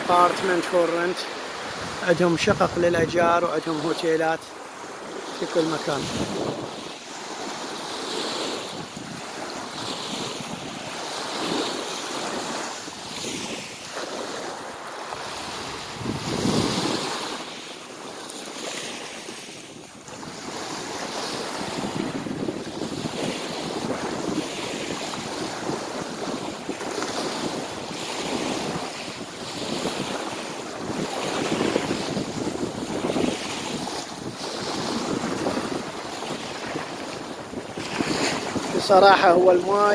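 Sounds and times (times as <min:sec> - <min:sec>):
waves washing over pebbles: 0:00.0 - 0:39.9
wind buffeting microphone: 0:01.6 - 0:03.4, 0:05.8 - 0:07.1, 0:08.4 - 0:13.7, 0:15.1 - 0:17.2, 0:19.6 - 0:39.9.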